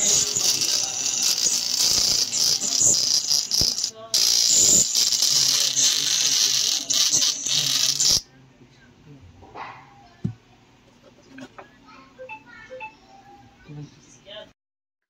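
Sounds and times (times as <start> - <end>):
distorted phone speaker buzz: 0.0 - 8.2.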